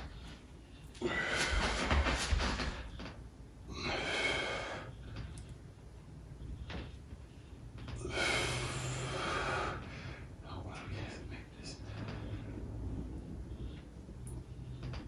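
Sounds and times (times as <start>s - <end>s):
person breathing hard: 0.0s - 3.1s, 3.7s - 5.5s, 7.4s - 10.4s.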